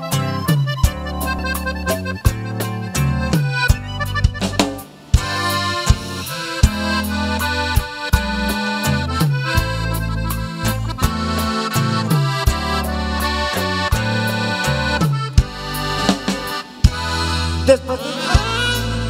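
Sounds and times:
band playing accordion music: 0.0 - 19.0
bass line: 0.0 - 19.0
button accordion: 0.0 - 19.0
drum hits: 1.9 - 8.3, 15.0 - 17.3.

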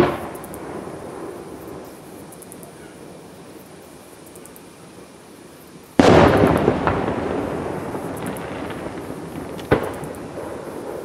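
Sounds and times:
fireworks shell exploding with boom: 0.0 - 1.8, 6.0 - 11.0.

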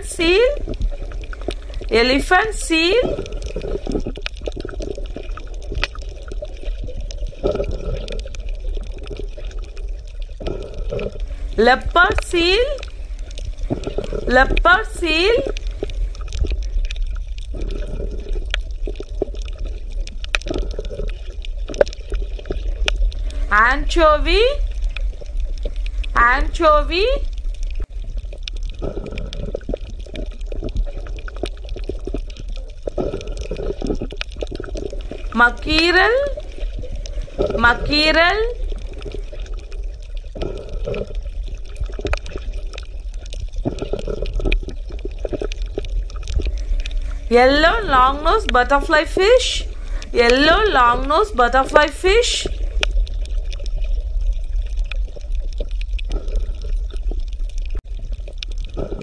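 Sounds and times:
water lapping and sloshing: 0.0 - 59.0
small splashes and clicks: 0.6 - 2.0, 3.0 - 14.3, 15.4 - 23.5, 27.2 - 35.4, 38.5 - 47.3, 52.2 - 59.0
steady low hum: 10.5 - 16.6, 23.1 - 28.1, 35.0 - 39.6
small pops and splashes: 15.5 - 23.4.

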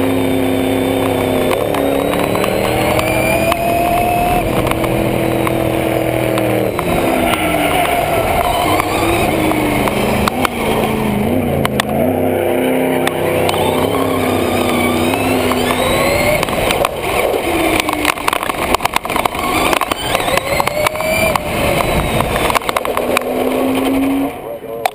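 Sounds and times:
car engine revving: 0.0 - 24.9
electric motor whining: 0.0 - 24.9
toy truck knocks and rattles: 13.0 - 24.0.

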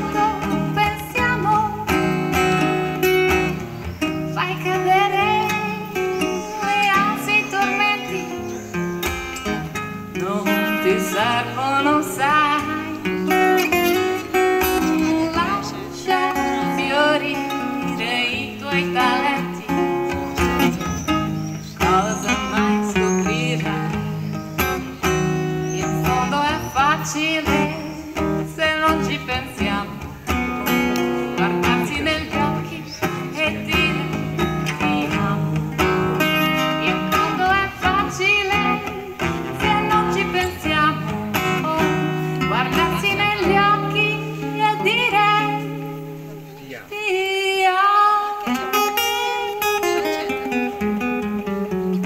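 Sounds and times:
woman singing: 0.0 - 46.3, 46.9 - 52.0
plucked string instruments: 8.2 - 46.9.

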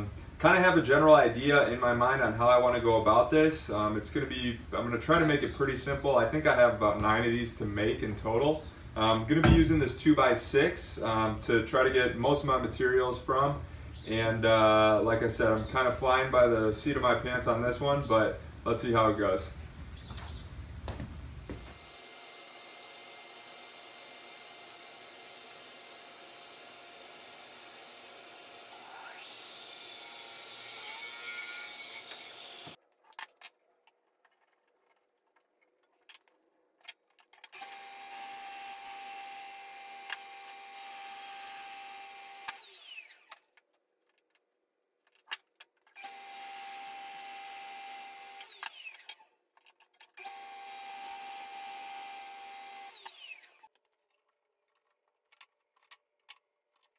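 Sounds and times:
radial arm saw running: 21.7 - 31.0, 50.2 - 53.7.

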